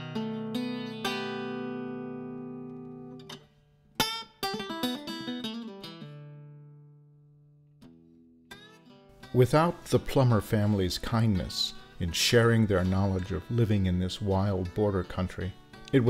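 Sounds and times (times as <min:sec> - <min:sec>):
plucked string music: 0:00.0 - 0:16.0.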